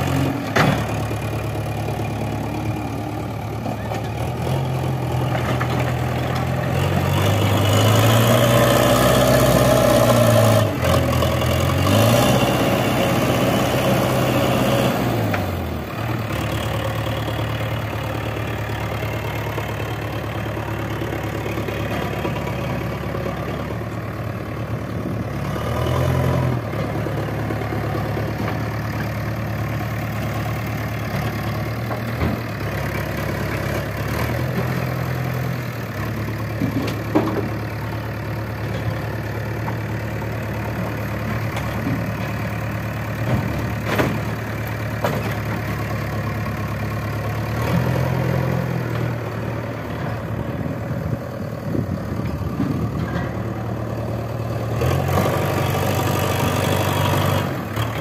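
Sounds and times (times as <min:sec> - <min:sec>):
backhoe diesel engine running: 0:00.0 - 0:58.0.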